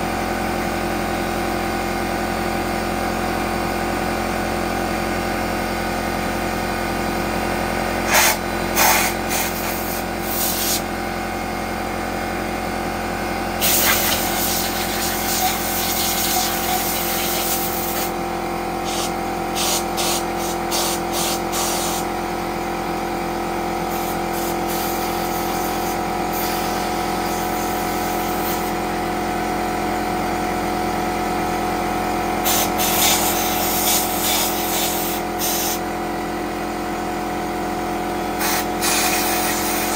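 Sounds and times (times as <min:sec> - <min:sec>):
air compressor motor humming: 0:00.0 - 0:39.9
air blow gun hissing: 0:08.1 - 0:10.8, 0:13.6 - 0:18.1, 0:18.8 - 0:22.1, 0:23.9 - 0:28.8, 0:32.4 - 0:35.8, 0:38.4 - 0:39.9.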